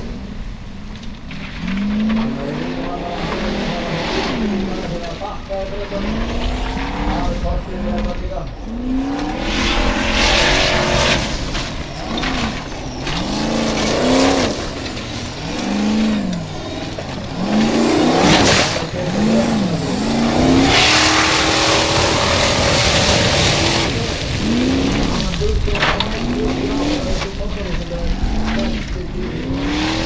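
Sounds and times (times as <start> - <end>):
buggy engine revving: 0.0 - 30.0
gravel spraying from tyres: 0.0 - 30.0.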